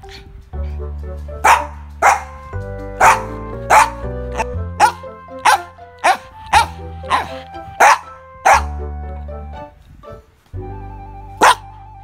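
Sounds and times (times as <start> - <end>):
background music with bass line: 0.0 - 12.0
dog barking: 1.4 - 2.4, 3.0 - 8.8, 11.4 - 11.6.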